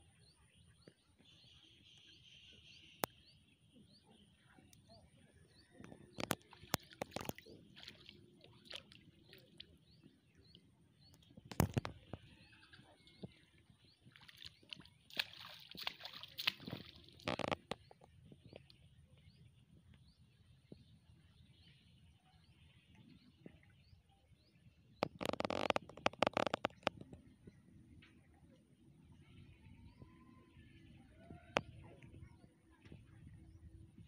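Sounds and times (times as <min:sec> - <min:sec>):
muddy water sloshing and splashing: 0:05.8 - 0:18.7.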